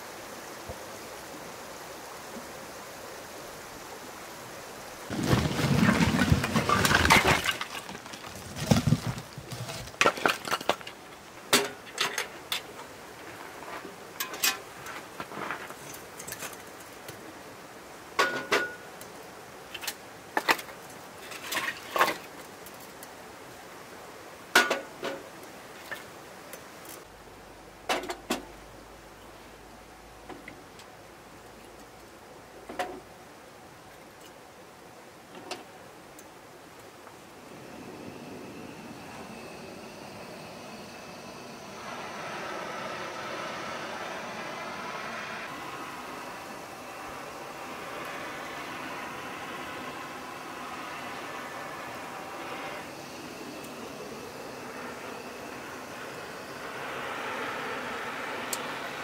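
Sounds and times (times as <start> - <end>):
background hiss: 0.0 - 59.0
rustling and shuffling: 5.1 - 17.1.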